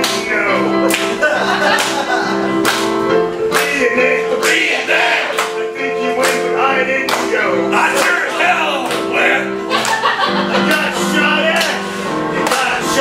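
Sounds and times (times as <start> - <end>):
person singing: 3.4 - 9.6, 10.4 - 13.0.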